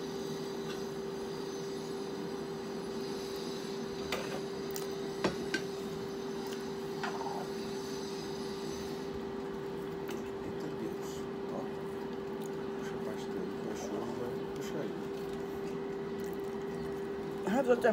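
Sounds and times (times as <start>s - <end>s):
steady hum: 0.0s - 17.9s
eating mouth sounds: 14.4s - 17.4s.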